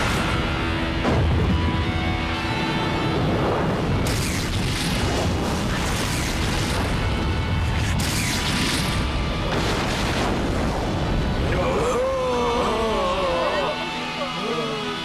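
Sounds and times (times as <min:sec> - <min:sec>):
explosion blasts: 0:00.0 - 0:02.4, 0:03.0 - 0:11.8.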